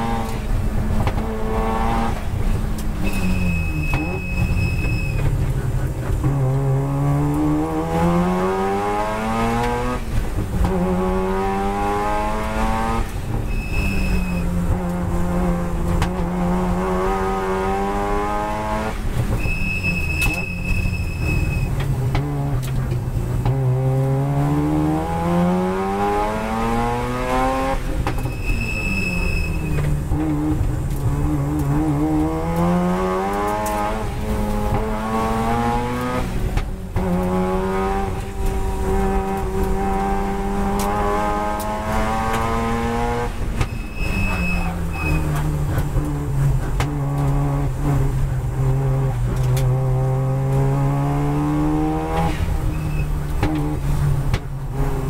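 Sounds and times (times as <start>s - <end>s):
rotary race car engine accelerating: 0.0s - 4.5s, 5.2s - 55.0s
brief high squeal: 3.0s - 5.3s, 13.5s - 14.5s, 19.4s - 21.7s, 28.2s - 29.9s, 43.6s - 45.4s, 52.7s - 53.2s.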